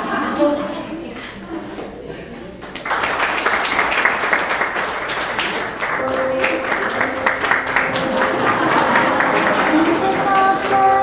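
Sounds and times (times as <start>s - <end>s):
audience applauding: 2.6s - 11.0s
held musical tone: 6.0s - 11.0s.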